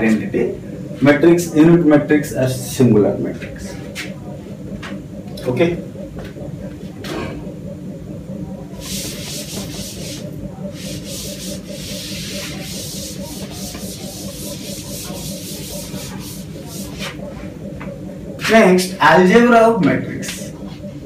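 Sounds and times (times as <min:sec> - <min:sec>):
low hum: 0:00.0 - 0:21.0
chalkboard being wiped: 0:08.8 - 0:17.2.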